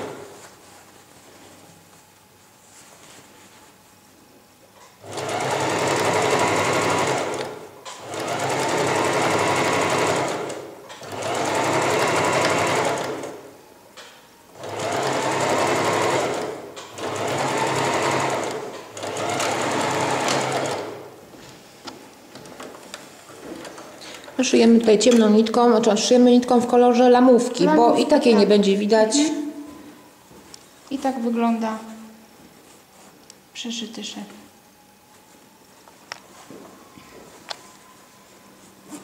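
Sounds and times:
sewing machine stitching: 0:05.0 - 0:13.4, 0:14.6 - 0:21.1.

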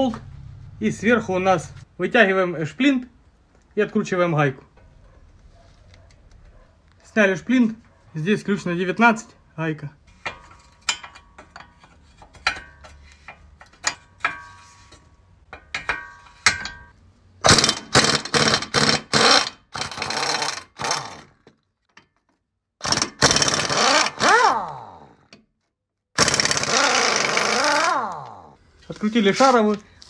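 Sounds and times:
impact wrench bursts: 0:17.4 - 0:21.3, 0:22.8 - 0:25.2, 0:26.2 - 0:28.4.

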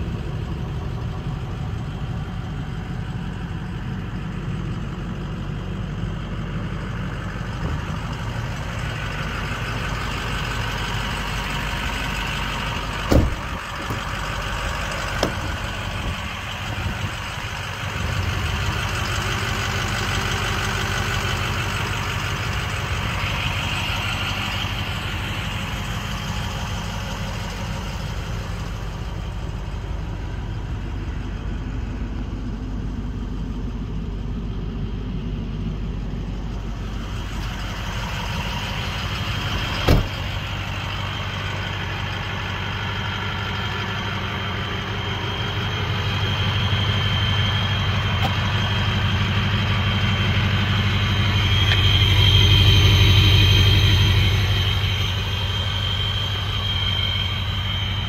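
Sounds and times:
diesel engine idling: 0:00.0 - 0:58.0
sharp thump: 0:13.1 - 0:14.1, 0:15.2 - 0:16.2, 0:39.8 - 0:40.3.

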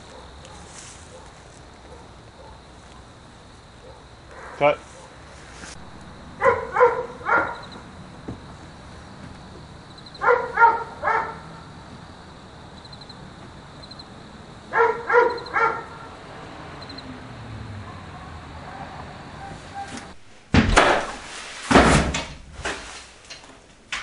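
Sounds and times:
dog barking: 0:00.0 - 0:03.2, 0:03.8 - 0:05.3, 0:06.4 - 0:07.9, 0:10.1 - 0:11.6, 0:14.7 - 0:16.2, 0:17.8 - 0:20.0.

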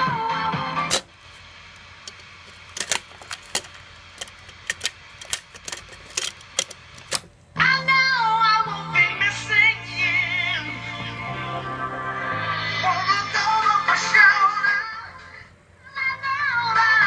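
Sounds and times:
music from car cassette player: 0:00.0 - 0:01.1, 0:08.9 - 0:15.4.

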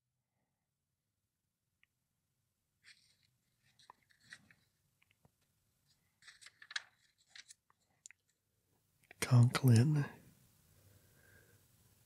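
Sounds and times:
page turn: 0:02.8 - 0:08.4
paper rustling: 0:02.8 - 0:08.4.

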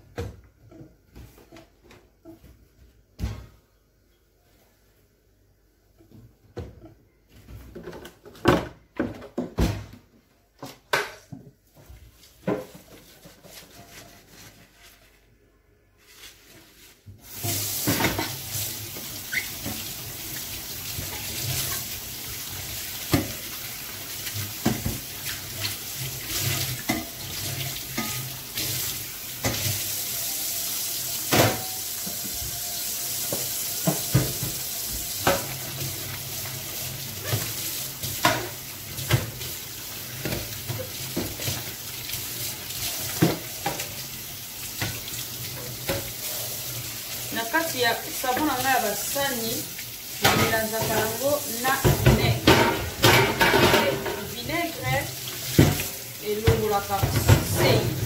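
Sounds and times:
pots and utensils clattering: 0:17.3 - 0:20.0, 0:24.2 - 0:28.8, 0:33.3 - 0:39.5, 0:50.2 - 0:58.0.

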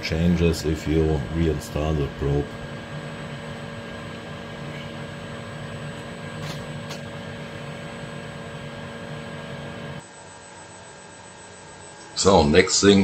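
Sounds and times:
steady tones: 0:00.0 - 0:10.2
workshop machinery humming: 0:00.0 - 0:13.0.

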